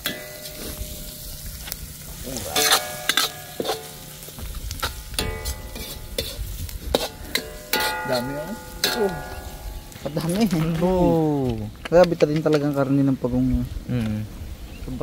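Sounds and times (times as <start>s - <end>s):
metal utensil clinking on pan: 0.0s - 1.0s, 2.5s - 4.2s, 4.8s - 10.4s
meat sizzling in a pan: 0.0s - 11.8s.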